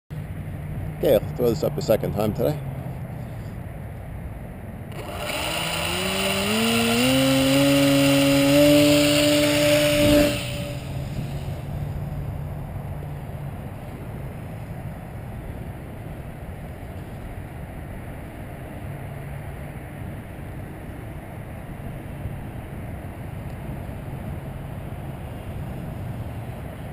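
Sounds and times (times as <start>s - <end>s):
wind: 0.1s - 26.9s
electric motor propeller whine: 4.9s - 12.4s.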